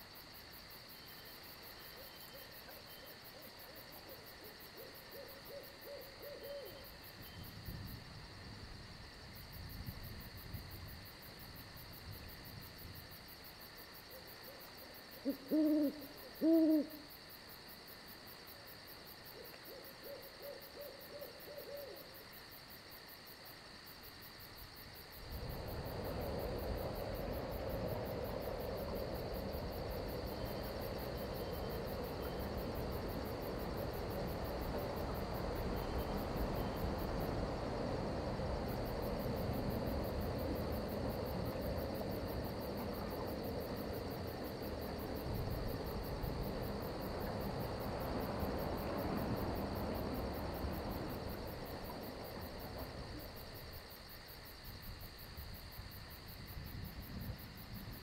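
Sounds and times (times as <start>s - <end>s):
crickets chirring: 0.0s - 58.0s
owl hooting: 4.8s - 6.8s, 15.2s - 17.1s.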